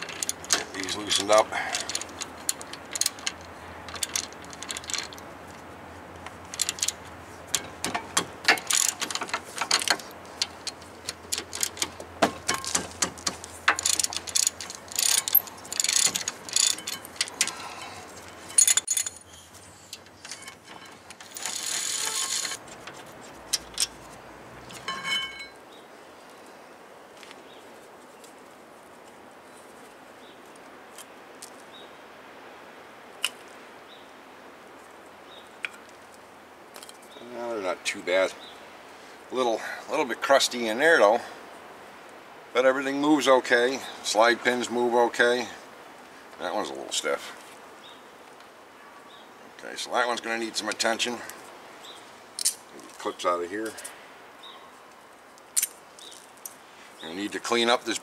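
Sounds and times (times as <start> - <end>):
metal tools clinking: 0.0 - 5.3, 6.5 - 25.6
hand ratchet clicking: 6.5 - 17.6.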